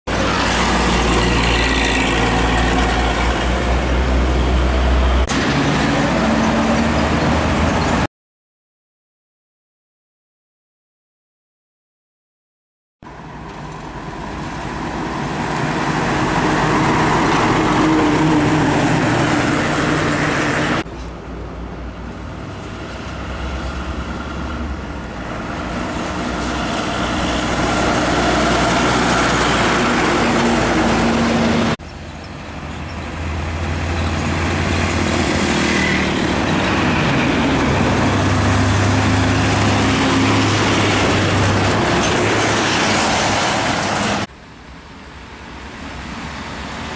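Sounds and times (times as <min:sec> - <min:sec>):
diesel truck engines droning: 0:00.1 - 0:08.1, 0:13.1 - 0:46.9
tyre noise on road: 0:13.0 - 0:46.9.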